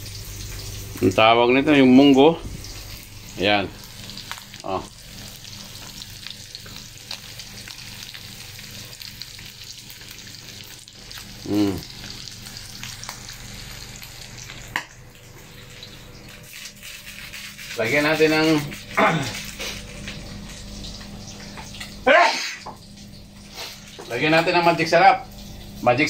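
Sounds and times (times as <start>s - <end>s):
food sizzling in a wok: 0.0s - 26.0s
short voice-like call: 11.5s - 11.8s.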